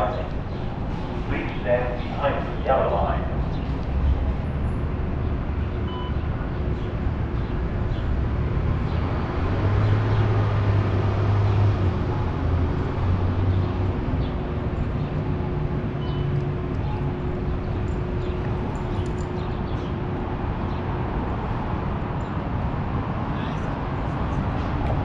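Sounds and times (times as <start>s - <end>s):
low vehicle engine hum: 0.0s - 25.0s
street traffic noise: 0.0s - 25.0s.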